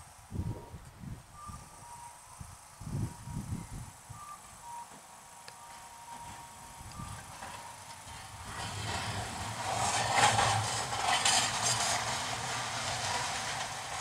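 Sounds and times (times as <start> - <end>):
tram rolling past: 2.0 - 14.0
wheels knocking over rail joints: 5.7 - 14.0.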